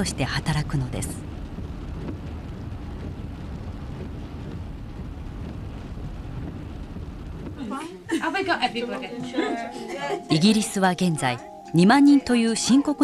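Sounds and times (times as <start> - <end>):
van engine and road rumble: 0.0 - 9.7.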